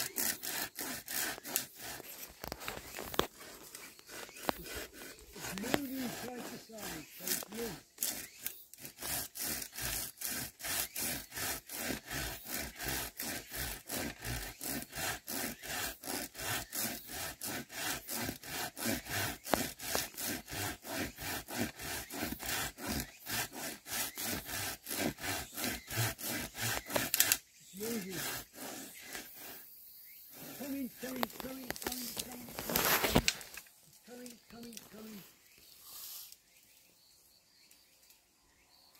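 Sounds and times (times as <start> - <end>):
hand saw cutting bamboo: 0.0 - 29.7, 30.3 - 35.1.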